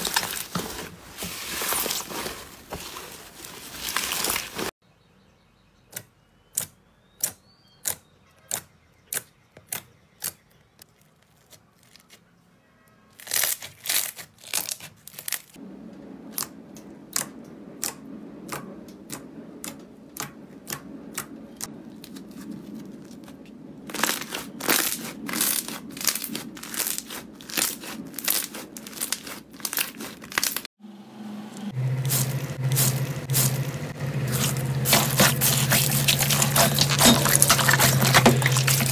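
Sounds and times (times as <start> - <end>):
slime popping and crackling: 23.9 - 30.6, 34.3 - 38.9
hand squishing wet water beads: 34.3 - 38.9.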